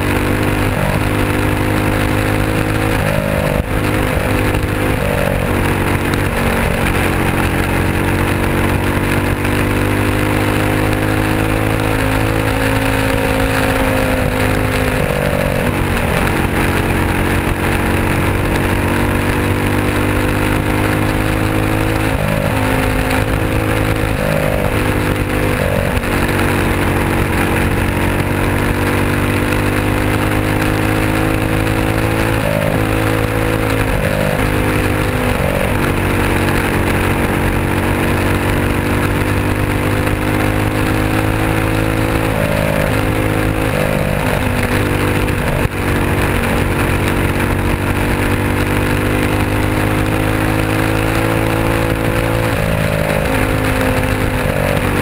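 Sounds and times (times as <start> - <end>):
race car engine at high revs: 0.0 - 55.0
rushing wind noise: 0.0 - 55.0.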